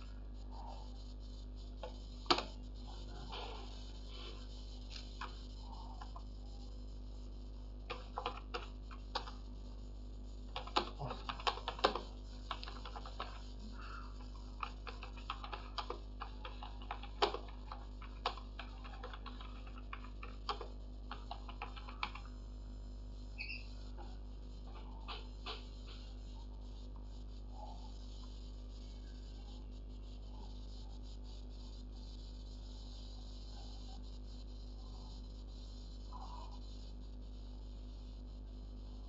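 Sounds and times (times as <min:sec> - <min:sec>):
steady low hum: 0:00.0 - 0:39.0
keyboard typing clicks: 0:07.9 - 0:09.4, 0:10.5 - 0:13.5, 0:14.2 - 0:22.3.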